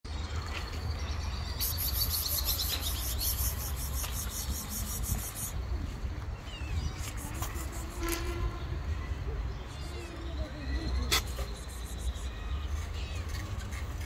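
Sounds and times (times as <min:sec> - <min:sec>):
high-pitched chirping trill: 0:01.6 - 0:05.6.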